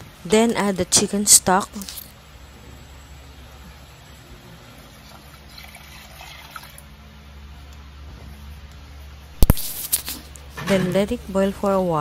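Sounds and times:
liquid pouring into pot: 5.0s - 6.9s.

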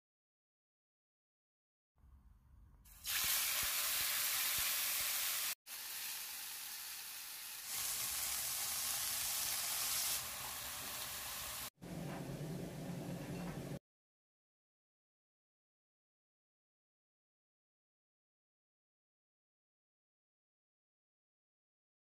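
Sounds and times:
chicken sizzling in frying oil: 2.9s - 11.8s.

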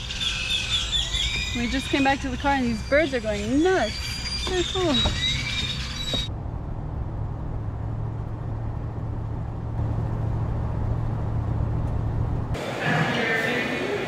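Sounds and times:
birds chattering: 0.0s - 6.3s
car cabin engine and road hum: 1.6s - 12.6s.

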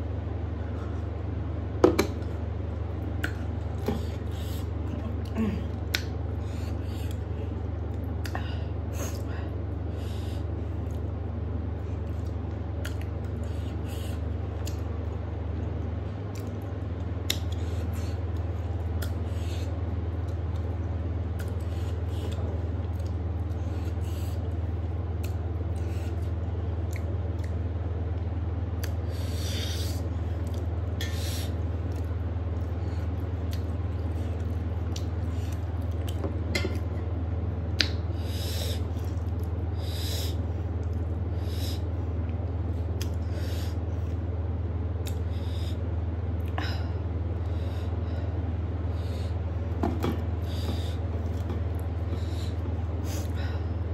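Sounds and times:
steady low hum: 0.0s - 53.9s
wet chewing and lip-smacking: 12.0s - 13.6s, 14.5s - 19.2s, 29.9s - 36.8s.

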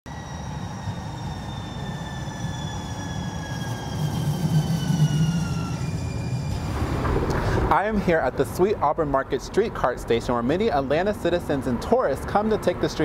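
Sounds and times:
tram electric whine falling in pitch: 0.1s - 7.7s
wheels rumbling on rail: 0.1s - 13.0s.

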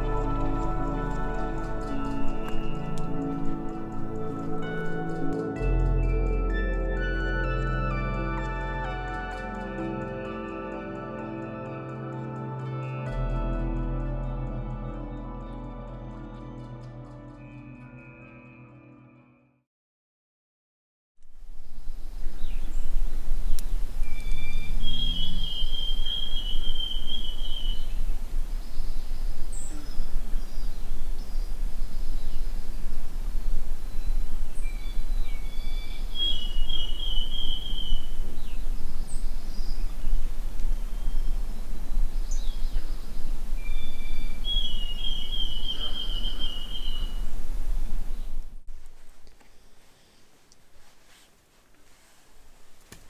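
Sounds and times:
steady low rumble: 0.0s - 9.3s, 21.3s - 48.8s
faint bird chirps: 21.4s - 47.4s
songbird trilling: 21.7s - 32.9s, 33.8s - 47.4s.

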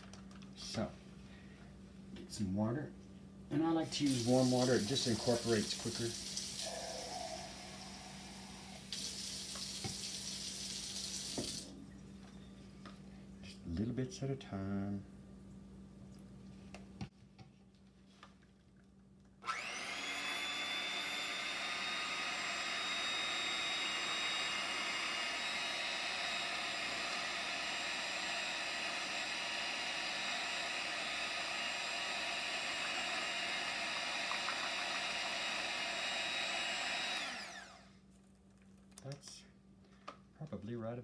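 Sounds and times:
electric hand mixer whining: 4.3s - 8.9s, 19.4s - 37.9s.

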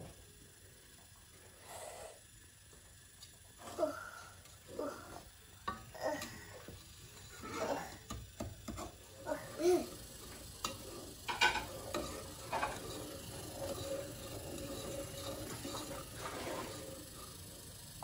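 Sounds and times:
wooden spoon stirring saucepan: 5.6s - 17.6s.

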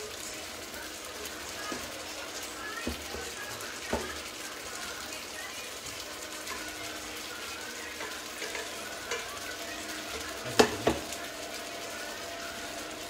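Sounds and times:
stew sizzling in a frying pan: 0.0s - 13.0s
metal pot clanking on cooktop: 8.0s - 9.3s, 10.2s - 11.1s.

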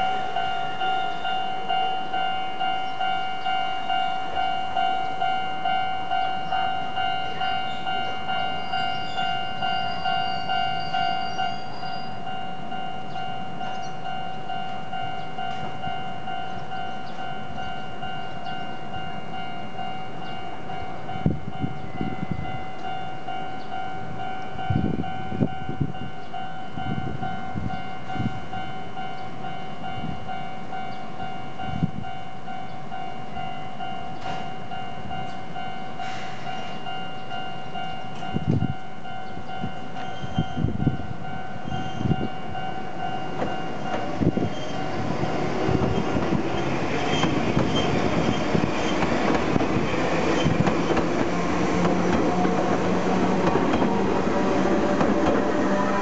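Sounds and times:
level-crossing alarm bell: 0.0s - 56.0s.

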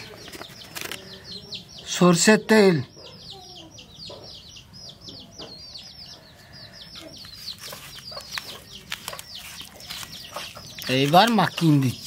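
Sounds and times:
low clucking bird calls: 0.0s - 12.0s
high falling bird peeps: 2.8s - 12.0s.

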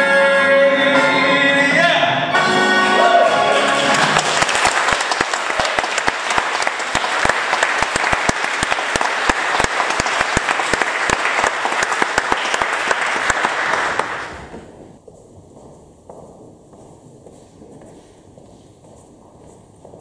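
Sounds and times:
backing music: 0.0s - 4.4s
crowd clapping: 3.6s - 14.6s.

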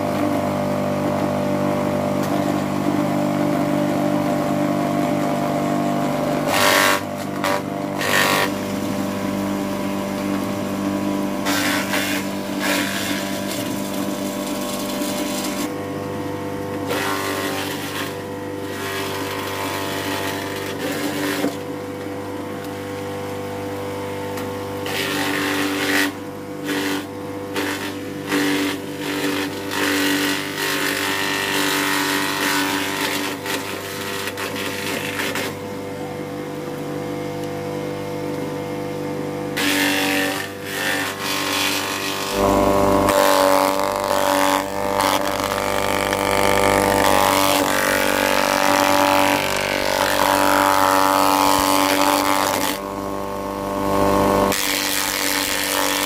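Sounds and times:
electric motor hum: 0.0s - 56.0s.

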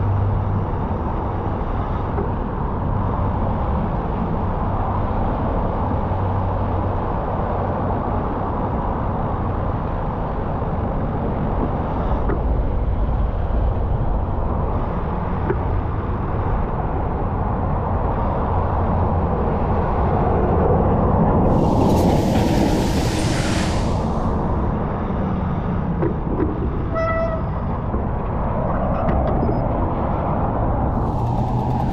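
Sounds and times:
cars on wet road: 21.5s - 25.8s.

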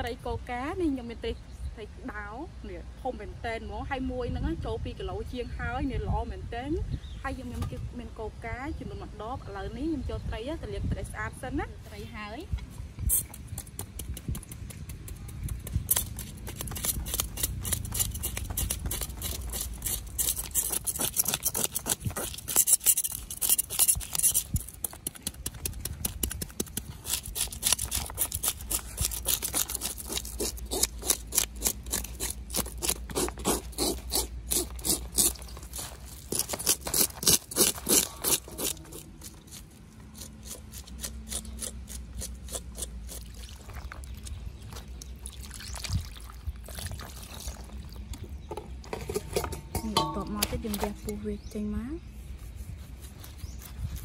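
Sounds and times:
knife scraping fish scales: 15.8s - 44.3s.

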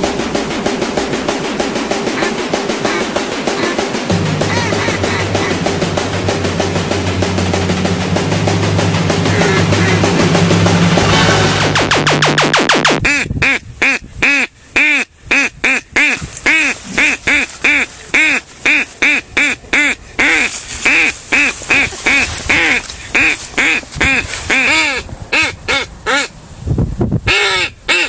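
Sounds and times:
duck call quacks: 2.0s - 6.3s, 9.2s - 10.4s, 11.8s - 26.4s, 27.3s - 28.0s.

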